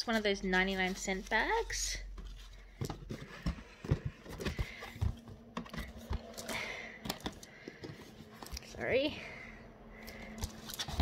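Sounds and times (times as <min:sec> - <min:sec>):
hands handling cardboard box: 0:00.0 - 0:08.7.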